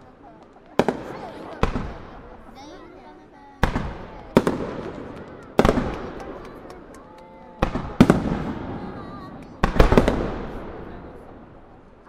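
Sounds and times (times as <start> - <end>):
rumble after firework bangs: 0.0 - 12.0
firework shells bursting: 3.6 - 12.0.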